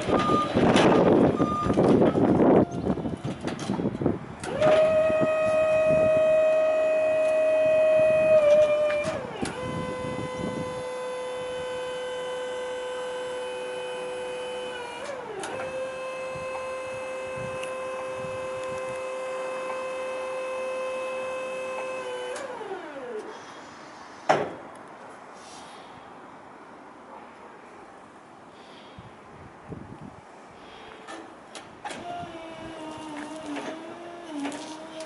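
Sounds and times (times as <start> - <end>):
hydraulic pump motor whining: 4.4 - 23.3, 31.9 - 35.0.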